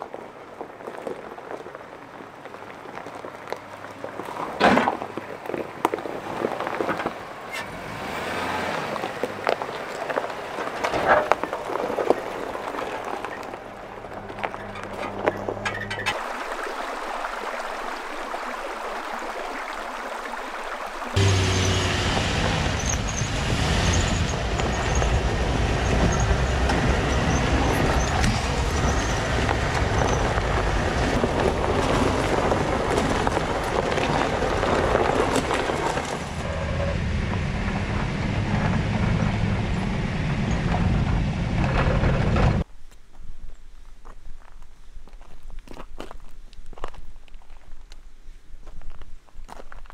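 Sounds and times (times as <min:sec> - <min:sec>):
creek trickling over stones: 0:00.0 - 0:07.5, 0:08.7 - 0:21.9, 0:24.5 - 0:36.4
pickup truck engine rumble: 0:06.6 - 0:16.2, 0:21.2 - 0:42.7
tyres knocking over rocks: 0:24.2 - 0:36.4.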